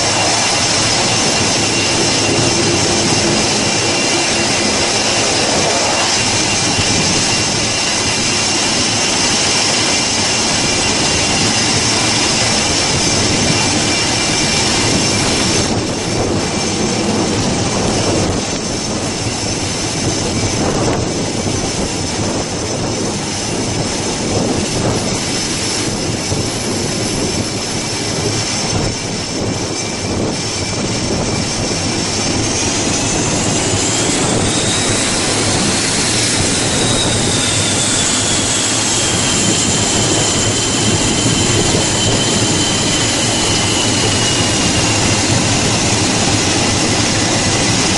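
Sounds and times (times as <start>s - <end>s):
turboprop engines roaring and whining: 0.0s - 47.9s.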